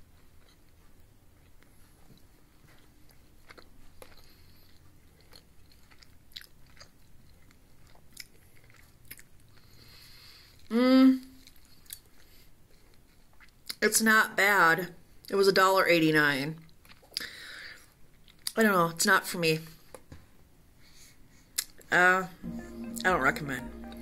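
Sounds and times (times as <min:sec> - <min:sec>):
chewing and mouth clicks: 0:00.0 - 0:10.7, 0:11.4 - 0:13.8, 0:16.6 - 0:18.6, 0:21.6 - 0:21.9
person humming mm: 0:10.7 - 0:11.4.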